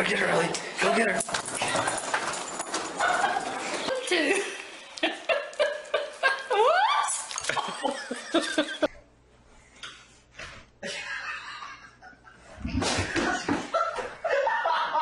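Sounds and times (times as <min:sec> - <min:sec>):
laughter: 0:05.0 - 0:08.9, 0:10.8 - 0:15.0.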